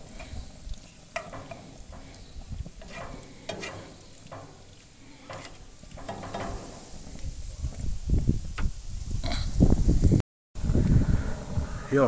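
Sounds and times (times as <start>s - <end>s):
tongs scraping frying pan: 0.0s - 7.1s
faint sizzle of frying: 0.0s - 7.6s.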